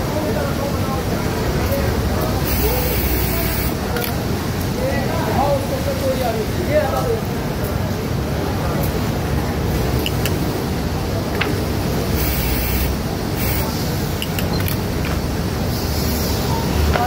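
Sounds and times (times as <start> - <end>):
machine hum and hiss: 0.1 - 4.8, 7.5 - 17.0
short bursts of hiss: 12.1 - 14.0.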